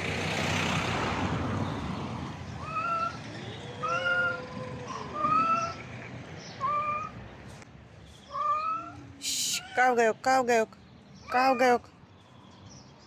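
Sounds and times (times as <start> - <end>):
cats yowling: 2.6 - 7.2, 8.3 - 9.9.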